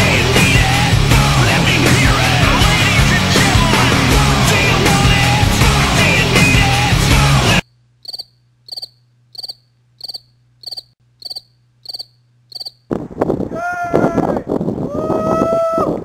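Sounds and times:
music: 0.0 - 7.6
cricket chirps: 7.6 - 12.9.

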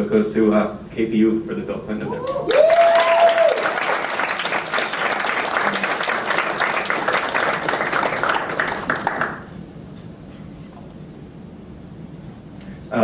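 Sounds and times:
audience applauding: 2.4 - 9.5.

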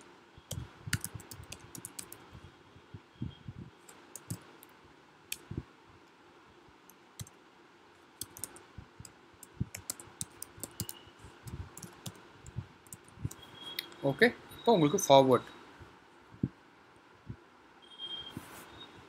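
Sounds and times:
keyboard typing: 0.0 - 2.3, 3.8 - 4.7, 6.9 - 7.4, 8.2 - 13.9.

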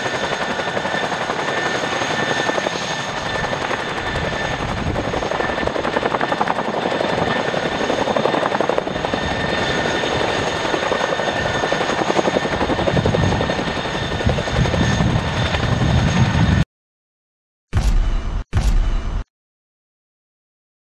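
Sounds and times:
helicopter rotor blade chop: 0.0 - 16.6
high turbine whine: 0.0 - 16.6.

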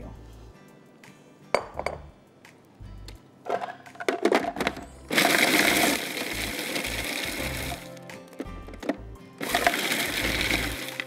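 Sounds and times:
food processor bowl clinking: 5.1 - 7.8, 9.4 - 11.0
food processor grinding: 5.1 - 7.8, 9.4 - 11.0.

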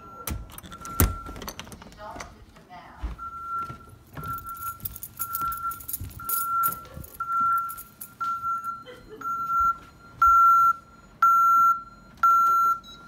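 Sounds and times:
alarm keypad beeps: 0.0 - 1.5, 3.2 - 13.0.

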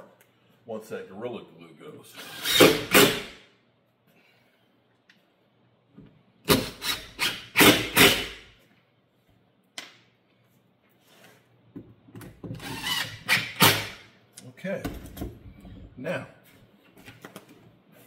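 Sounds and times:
cordless drill driving a screw: 2.2 - 3.2.

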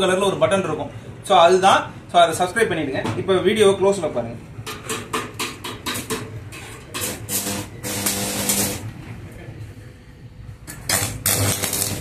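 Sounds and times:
welding arc hissing and crackling: 7.0 - 8.9, 10.8 - 12.0.

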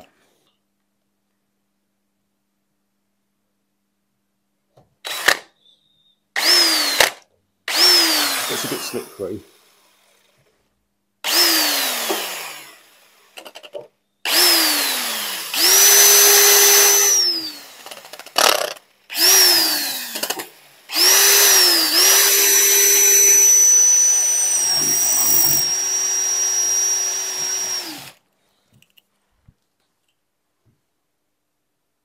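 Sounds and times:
cordless drill boring into tile: 5.1 - 5.4, 6.4 - 10.2, 11.2 - 13.7, 14.3 - 28.2.

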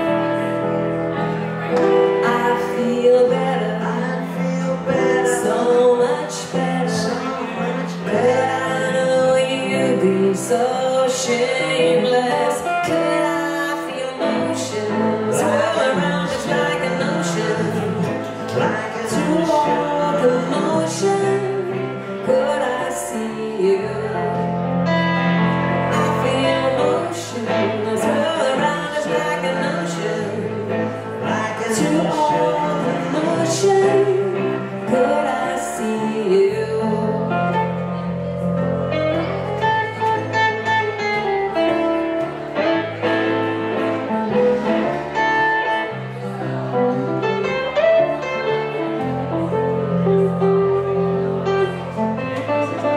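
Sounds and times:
keyboard playing: 0.0 - 52.9
woman singing: 1.9 - 38.4
electric guitar playing: 37.4 - 52.9.

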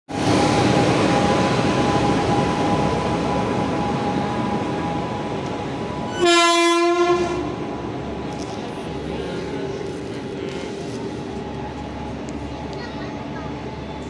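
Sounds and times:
train wheels rumbling on rail joints: 0.1 - 14.0
train horn blast: 6.1 - 7.6.

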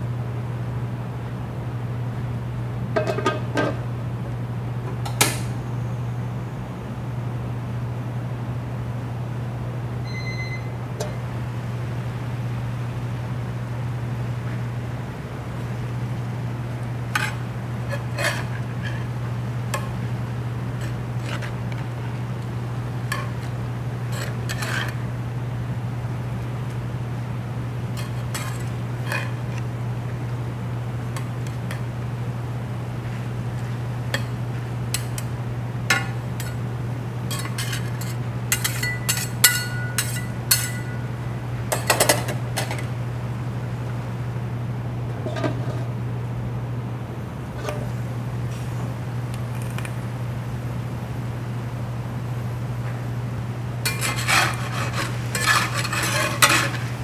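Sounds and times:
steady low hum: 0.0 - 57.0
metal utensils scraping a pan: 17.2 - 19.0, 24.1 - 25.0, 28.0 - 29.4, 37.3 - 41.0, 53.8 - 57.0.

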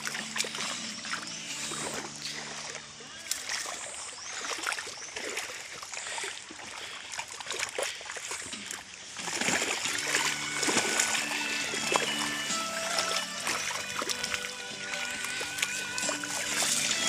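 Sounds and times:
music with held notes: 0.0 - 3.1, 9.8 - 17.0
water splashing underfoot: 0.0 - 17.0.

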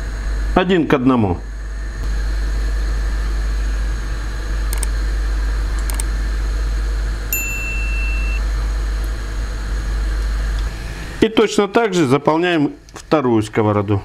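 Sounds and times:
low hum: 0.0 - 11.4
bright ding: 7.3 - 8.4.

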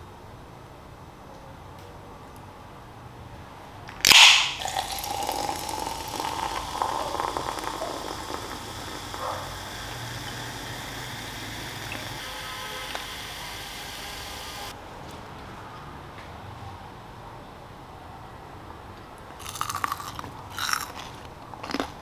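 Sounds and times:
can opening hiss: 3.9 - 14.7
cola pouring and fizzing: 4.0 - 14.7.

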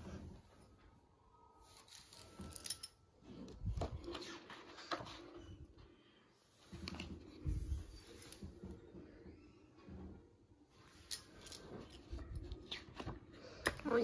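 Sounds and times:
photo album pages turning: 1.7 - 5.5, 6.6 - 8.6, 11.0 - 14.0.

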